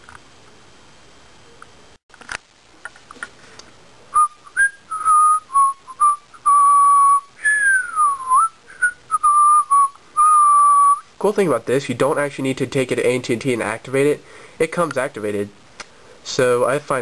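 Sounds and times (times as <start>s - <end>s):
person whistling a tune: 4.2s - 11.0s.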